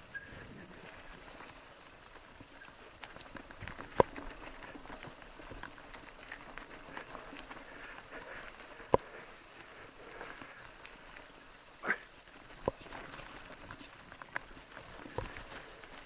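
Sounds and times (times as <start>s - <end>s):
bike clattering on loose stones: 0.4s - 9.3s.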